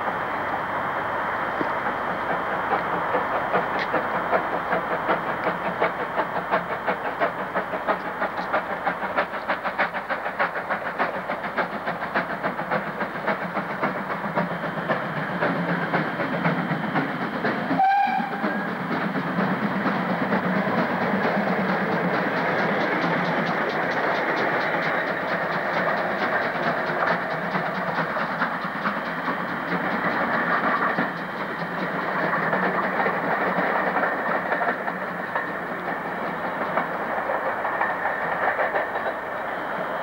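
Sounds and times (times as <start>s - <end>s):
steam locomotive exhaust beating: 0.0s - 40.0s
steam whistle blast: 17.8s - 18.7s.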